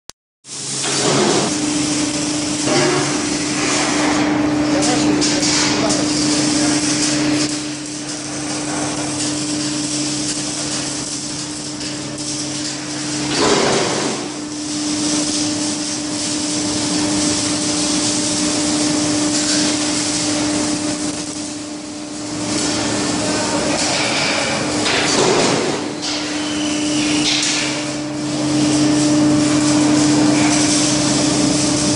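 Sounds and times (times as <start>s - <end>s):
washing machine humming: 0.5s - 31.9s.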